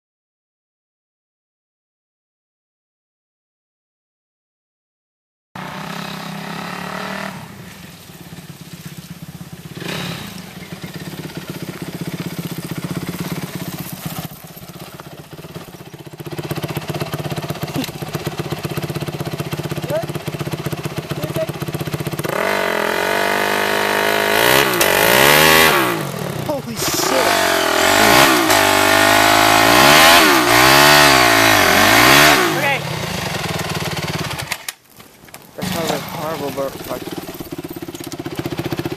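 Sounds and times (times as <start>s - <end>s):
motorbike engine idling and revving: 5.6s - 38.9s.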